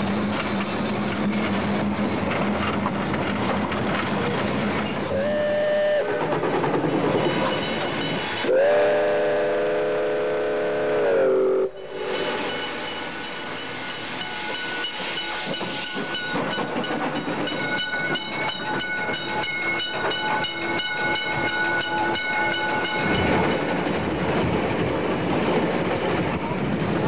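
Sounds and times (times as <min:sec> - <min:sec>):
steam hissing: 0:00.0 - 0:18.7
locomotive exhaust beating: 0:00.0 - 0:27.0.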